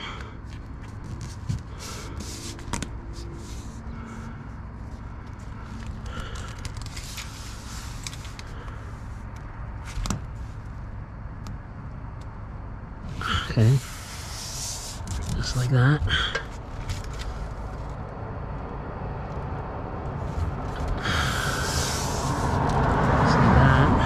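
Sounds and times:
low steady rumble: 0.0 - 24.0
foam tape crackling and rustling: 0.4 - 3.8, 4.9 - 8.5, 13.8 - 15.6, 16.5 - 18.0.

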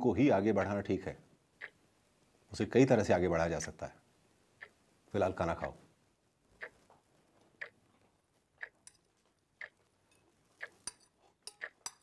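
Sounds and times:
clock ticking: 1.5 - 1.9, 4.6 - 5.7, 6.5 - 6.9, 7.5 - 12.0.

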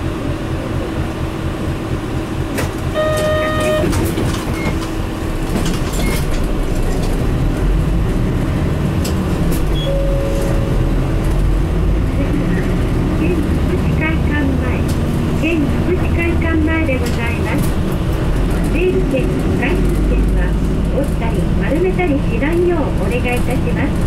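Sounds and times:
bus engine drone: 0.0 - 24.0
short beep: 3.0 - 3.9, 9.8 - 11.0
faint tone: 9.8 - 11.0.

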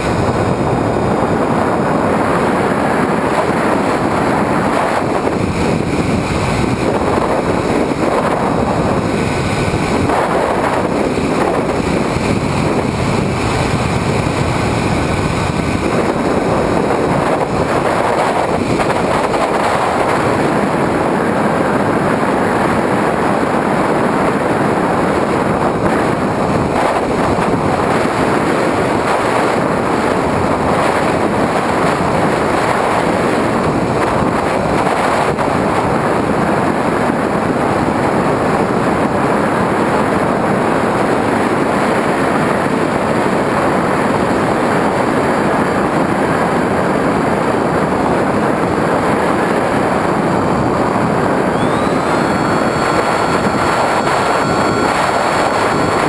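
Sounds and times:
airflow and propeller noise: 0.0 - 56.0.

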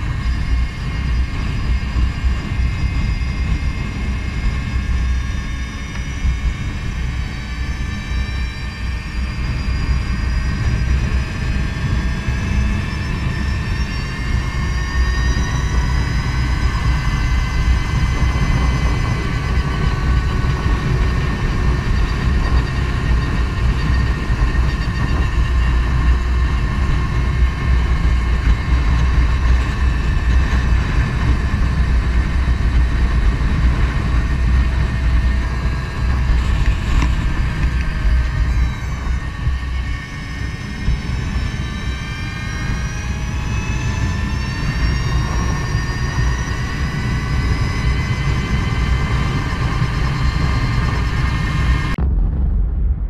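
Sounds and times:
electric motor whine: 0.0 - 52.0
wind buffeting camera: 0.0 - 53.0.

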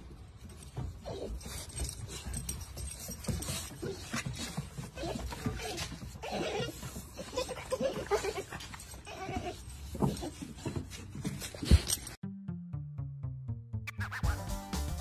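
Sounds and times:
dogs whining: 0.8 - 12.0
background music: 12.2 - 15.0.

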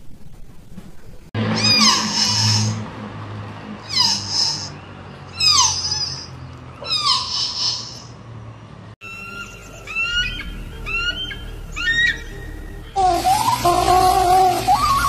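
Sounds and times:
bird of prey calling: 3.8 - 8.1, 9.0 - 15.0.

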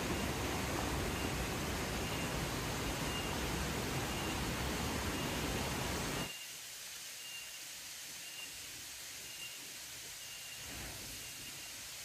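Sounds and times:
stream and waterfall rushing: 0.0 - 12.0
faint high chirp: 3.0 - 3.4, 6.1 - 6.6, 7.2 - 11.8.

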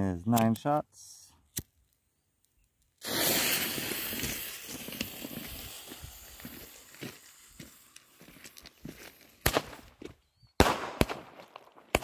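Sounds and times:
firework fuse hissing: 2.9 - 9.8
footsteps crunching on gravel: 4.2 - 10.2.

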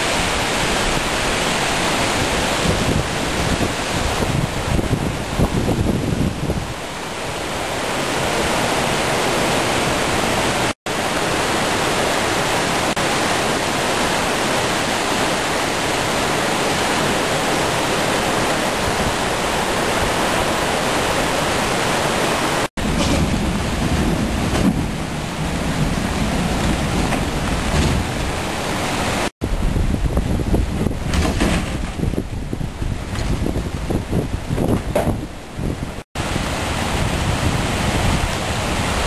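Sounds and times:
wind buffeting microphone: 0.0 - 8.8, 22.6 - 39.0
river floodwater rushing: 0.0 - 39.0.

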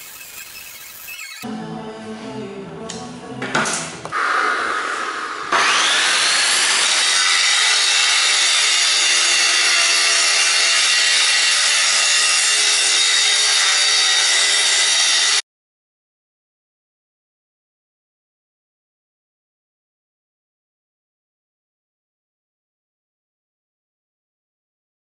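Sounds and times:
angle grinder grinding steel: 0.0 - 1.5, 5.5 - 15.4.

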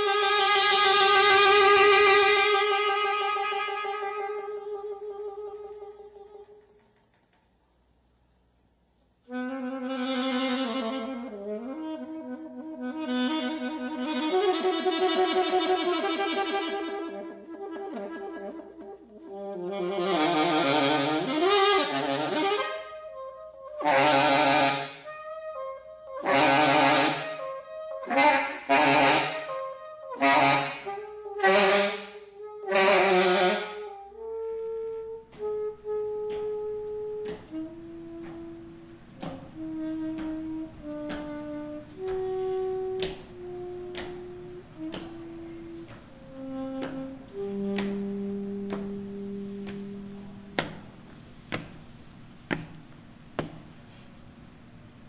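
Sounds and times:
alto saxophone playing: 0.0 - 6.8, 9.2 - 52.0.

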